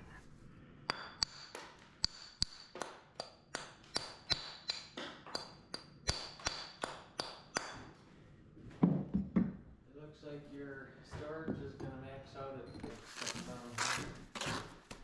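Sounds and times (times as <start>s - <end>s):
hammer tapping stone: 0.9s - 7.9s.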